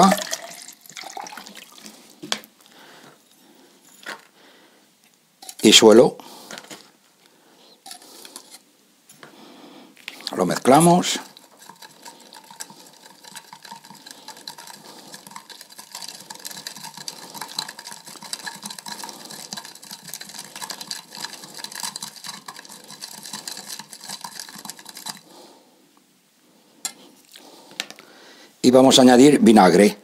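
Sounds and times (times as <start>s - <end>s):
soil stirred in a glass: 0.0s - 2.2s, 5.4s - 5.8s, 7.8s - 8.6s, 10.0s - 25.5s.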